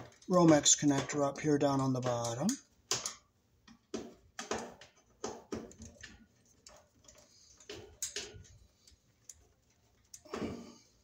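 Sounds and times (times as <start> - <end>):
screwdriver clicking and scraping metal: 5.7 - 10.2.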